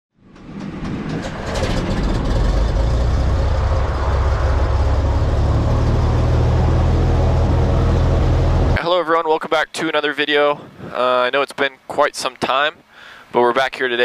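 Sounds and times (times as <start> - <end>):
propeller plane engine droning: 0.2 - 8.8.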